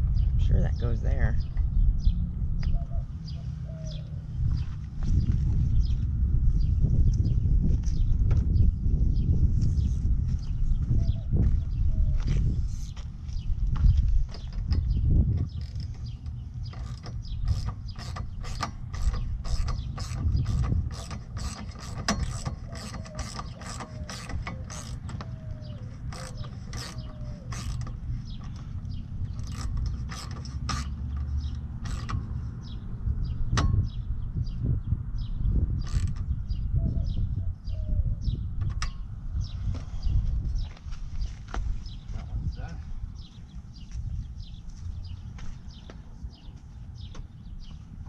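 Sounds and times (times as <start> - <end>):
wind rumble on microphone: 0.0 - 48.0
hand ratchet clicking: 14.3 - 28.7, 29.3 - 32.4, 35.9 - 36.2.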